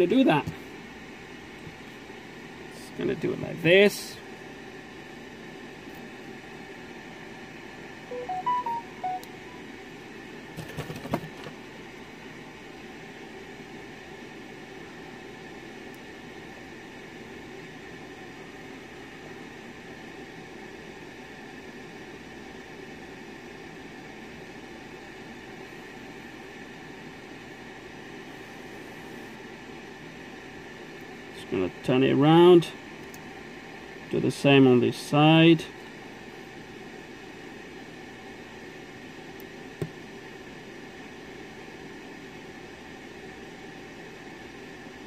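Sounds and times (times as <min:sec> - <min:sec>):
background hiss and hum: 0:00.0 - 0:45.0.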